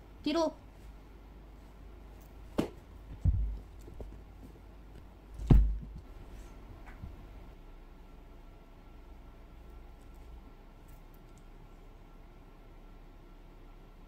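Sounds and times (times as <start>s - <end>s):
dull thumps and knocks: 2.6s - 4.3s, 5.4s - 6.1s.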